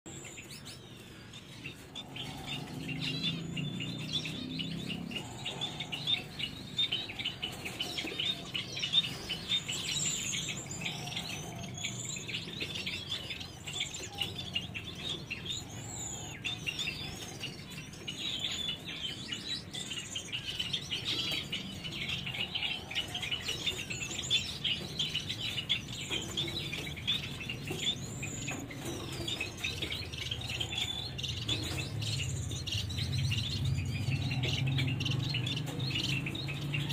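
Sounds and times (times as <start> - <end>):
finches chirping: 0.1 - 36.9.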